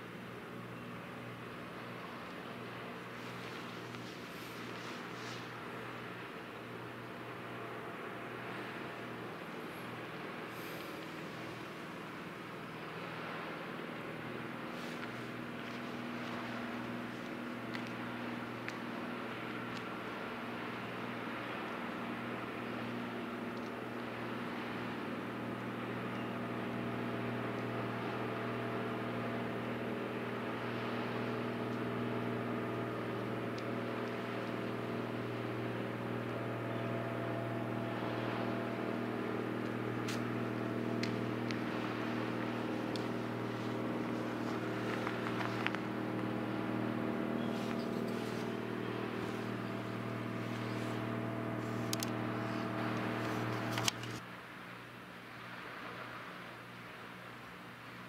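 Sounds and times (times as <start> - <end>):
mechanical engine-like drone: 0.0 - 54.2
faint clicks: 14.9 - 20.0, 23.5 - 23.8, 39.6 - 46.6, 47.4 - 54.2.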